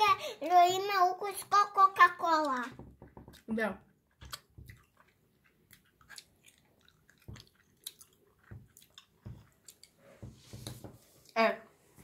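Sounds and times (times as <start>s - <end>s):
person chewing gummy candy: 4.0s - 10.2s.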